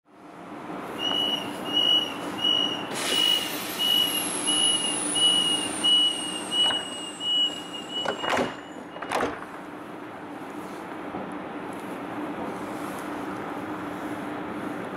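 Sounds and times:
high warning beep: 1.0 - 9.0
train doors thudding shut: 4.8 - 9.7.

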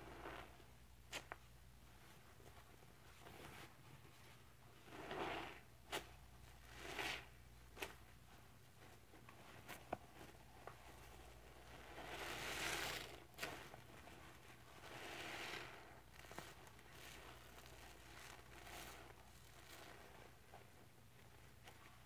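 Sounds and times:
wet sponges squelching: 9.0 - 20.6.

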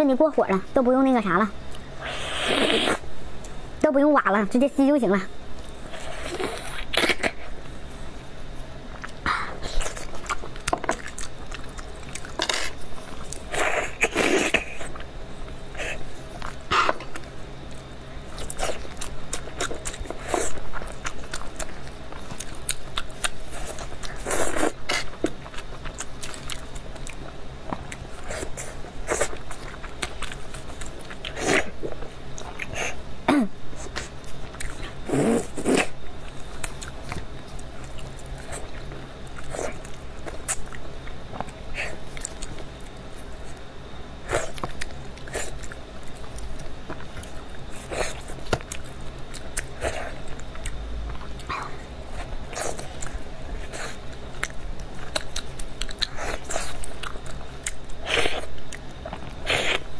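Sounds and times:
wet chewing and mouth smacks: 52.2 - 59.9.

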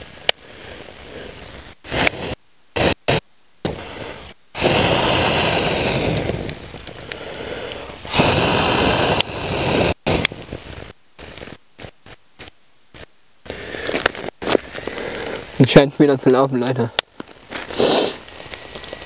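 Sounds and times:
rustling and scraping: 17.1 - 19.0.

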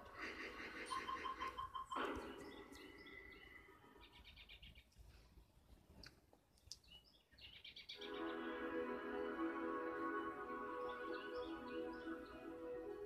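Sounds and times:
faint bird chirps and trills: 0.2 - 5.0, 6.5 - 8.6, 10.2 - 12.9.

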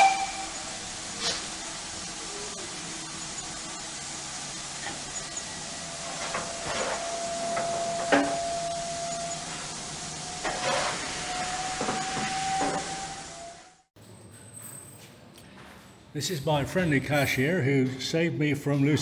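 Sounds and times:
steam locomotive hissing: 0.0 - 13.9.

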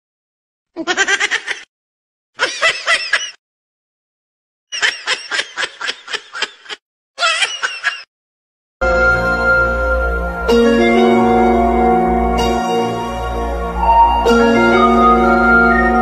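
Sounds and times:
high-pitched giggling: 0.8 - 1.7, 4.8 - 8.1
music: 8.8 - 16.0.

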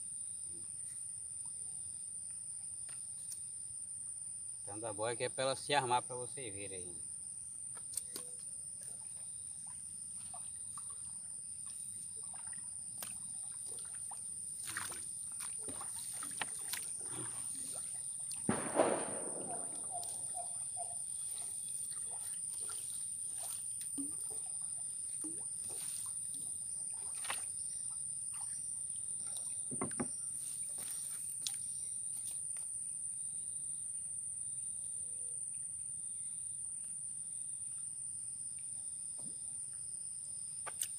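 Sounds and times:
crickets trilling: 0.0 - 40.9
water sloshing and splashing: 8.0 - 18.6, 19.6 - 32.4
knocks on canoe hull: 29.7 - 30.2.

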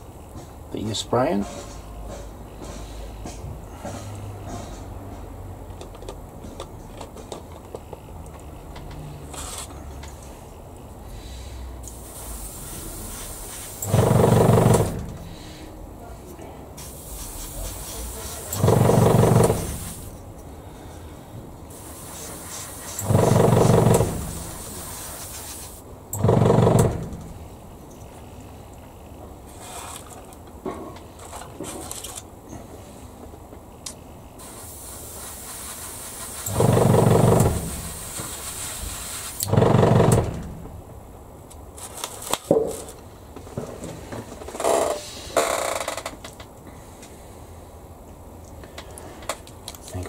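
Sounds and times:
airbrush air hiss: 11.8 - 15.7, 16.8 - 20.2, 21.7 - 25.8, 34.4 - 39.4
compressor motor humming: 11.9 - 15.4, 16.9 - 20.1, 21.7 - 25.0, 36.4 - 38.4.

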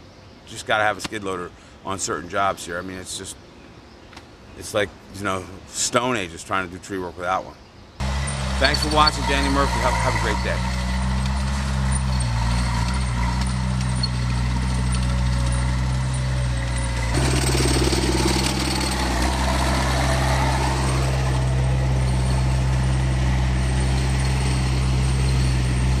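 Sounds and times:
loader engine running: 8.0 - 26.0.

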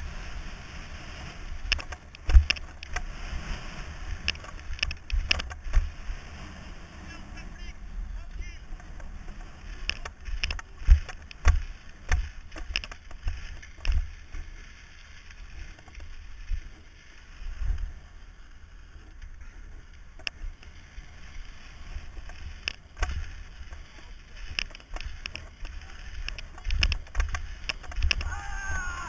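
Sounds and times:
bike knocks and rattles: 1.7 - 3.1, 4.2 - 6.0, 8.8 - 14.4, 22.2 - 28.3.

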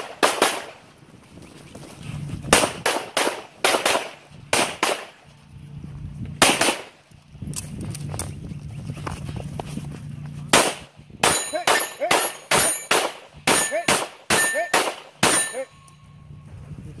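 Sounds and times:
pistol shots: 0.0 - 0.8, 2.5 - 5.2, 6.4 - 6.9, 10.5 - 15.7
low steady rumble: 0.0 - 17.0
steel plates ringing: 11.2 - 16.3.

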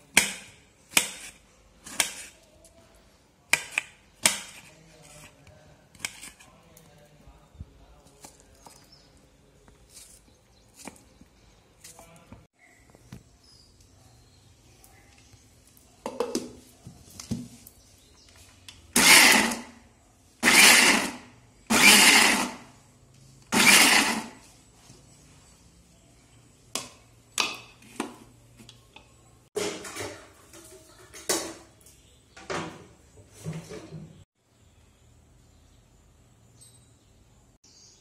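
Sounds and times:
mixer grinder running: 19.0 - 19.7, 20.4 - 22.7, 23.4 - 24.4.

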